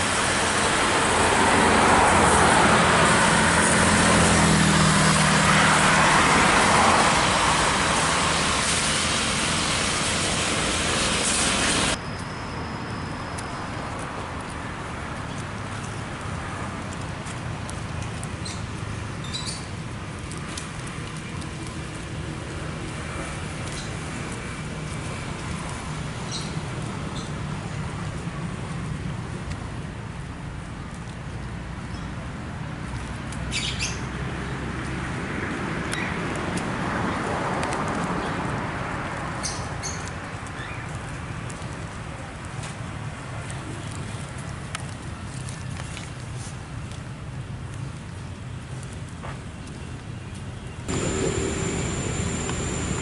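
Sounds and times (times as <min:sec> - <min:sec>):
steady outdoor noise: 0:00.0 - 0:53.0
high chirp: 0:50.9 - 0:53.0
low hum: 0:50.9 - 0:53.0.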